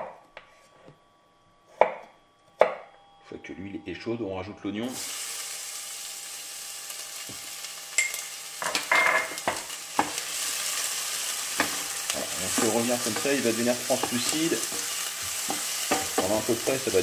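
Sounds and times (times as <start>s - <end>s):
onion sizzling in oil: 4.9s - 17.0s
wooden spoon scraping a pan: 11.5s - 17.0s.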